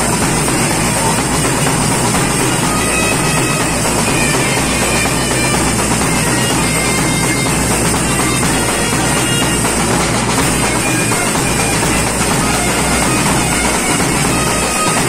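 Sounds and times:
bass drum: 0.0 - 15.0
clarinets playing: 0.0 - 15.0
snare drums: 0.0 - 15.0.

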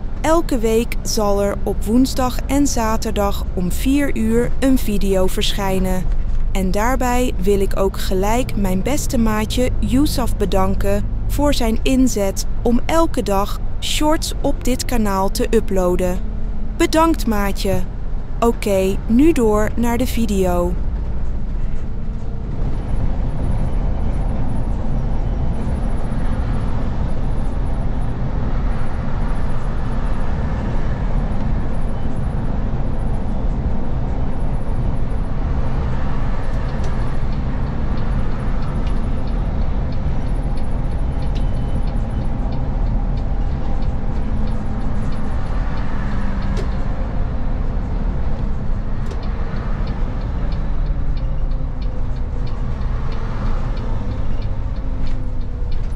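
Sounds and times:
bus engine and road rumble: 0.0 - 55.9.

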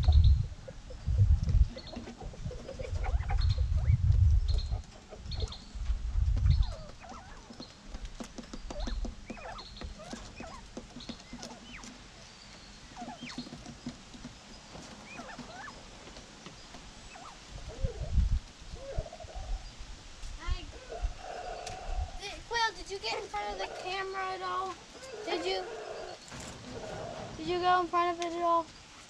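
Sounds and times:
low rumbling thumps on microphone: 0.0 - 11.4
quail chirping and peeping: 0.0 - 29.0.

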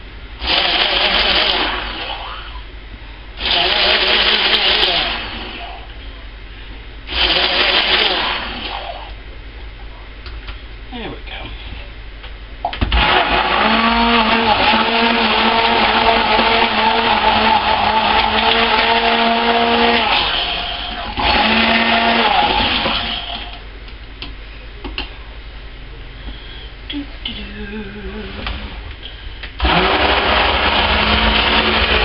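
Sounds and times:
stick blender motor running: 0.4 - 2.4, 3.4 - 5.8, 7.1 - 9.2, 12.9 - 23.6, 29.6 - 32.0.

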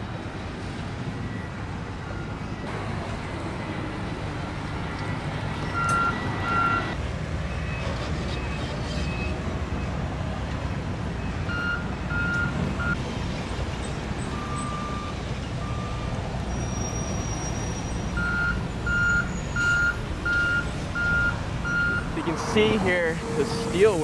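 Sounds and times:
diesel engine rumbling: 1.5 - 24.0
backup alarm beeping: 5.7 - 7.0, 11.5 - 13.0, 18.2 - 22.2.

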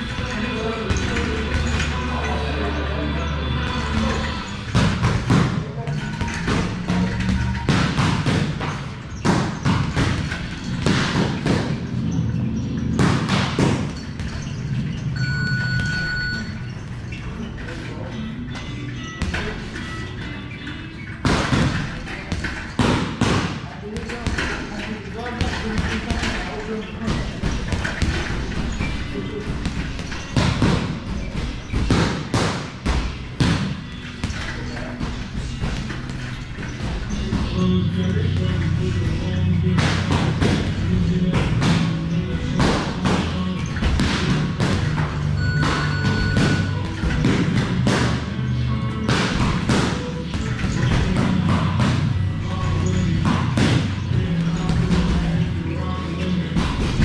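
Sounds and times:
boxing gloves hitting punching bag: 3.7 - 12.2, 12.8 - 14.5, 21.2 - 24.6, 25.4 - 37.6, 39.7 - 55.5, 56.5 - 57.0.

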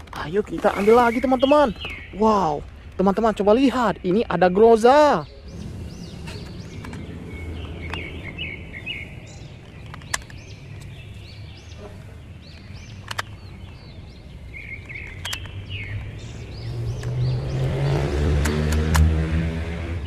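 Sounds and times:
birds chirping: 0.0 - 20.0
vehicle engine: 5.4 - 20.0
sharp plastic clicks: 9.6 - 11.0, 12.5 - 13.9, 14.6 - 16.2, 18.4 - 19.1
toy blaster plastic handling: 13.0 - 13.4.

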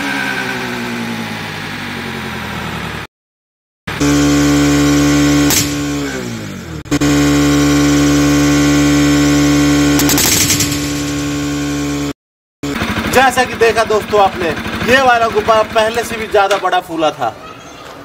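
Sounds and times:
motorcycle engine drone: 0.0 - 3.1, 3.9 - 16.7.

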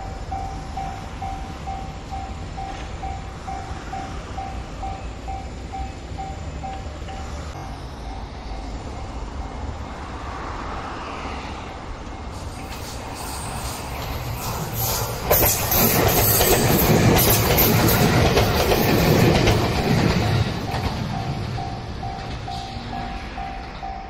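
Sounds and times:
level-crossing warning bell: 0.0 - 9.9, 15.4 - 24.0
electric train passing: 0.0 - 24.0
wheels clacking over rail joints: 13.7 - 23.0.

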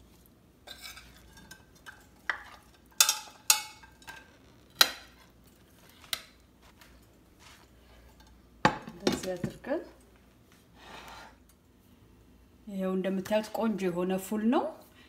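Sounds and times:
metal spatula scraping pan: 0.6 - 5.4, 10.8 - 11.4.

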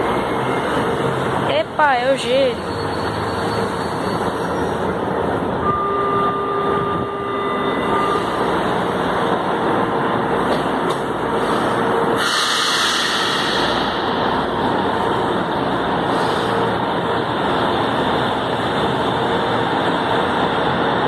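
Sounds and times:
metro train running noise: 0.0 - 21.0
hiss: 11.4 - 14.0.

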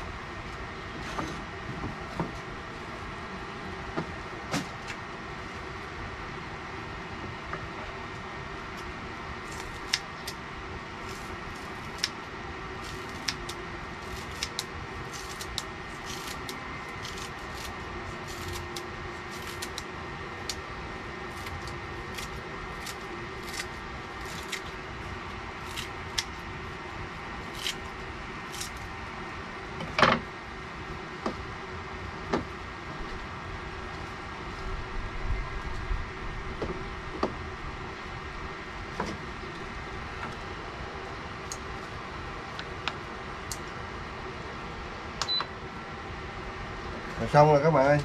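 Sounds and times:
background hum: 0.0 - 48.0
scissors snipping herbs: 8.8 - 10.4, 11.0 - 12.2, 12.8 - 20.7, 21.3 - 24.8, 25.6 - 26.4, 27.4 - 27.9, 28.5 - 28.8.

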